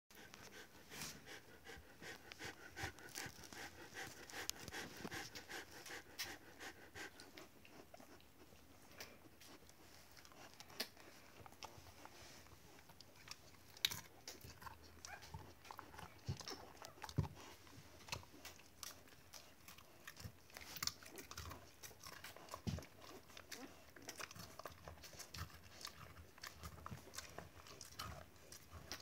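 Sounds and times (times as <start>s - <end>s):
dog panting: 0.1s - 29.0s
dog crunching bread stick: 13.0s - 17.2s.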